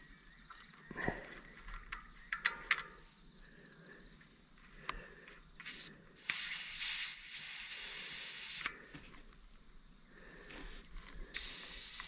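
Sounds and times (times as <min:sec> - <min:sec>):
air hissing out of tyre valve: 0:05.6 - 0:08.8, 0:11.3 - 0:12.0.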